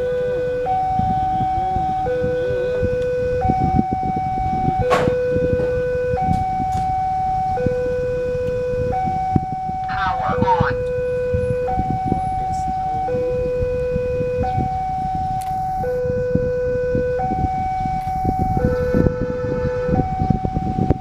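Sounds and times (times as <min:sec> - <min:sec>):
two-tone crossing alarm: 0:00.0 - 0:21.0.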